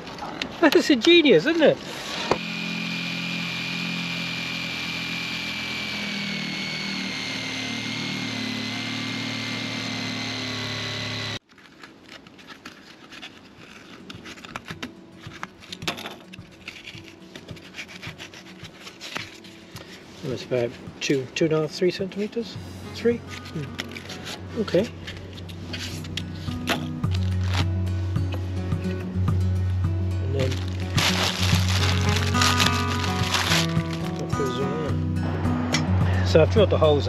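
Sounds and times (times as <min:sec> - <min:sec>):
jigsaw cutting steel: 0:01.6 - 0:11.4, 0:30.4 - 0:34.6
faint clicks and scrapes: 0:11.4 - 0:20.0.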